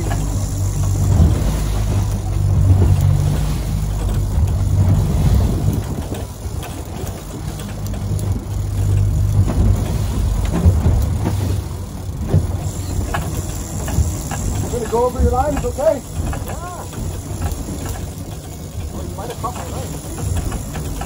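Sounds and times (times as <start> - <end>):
outboard engines humming: 0.0 - 21.0.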